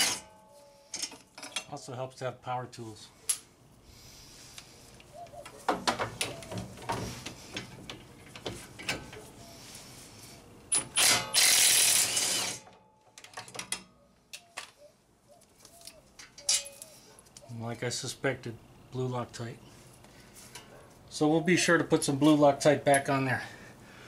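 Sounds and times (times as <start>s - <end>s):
metal tools clicking and clinking: 0.0s - 1.8s, 15.8s - 17.4s
cordless impact wrench running: 11.0s - 12.6s.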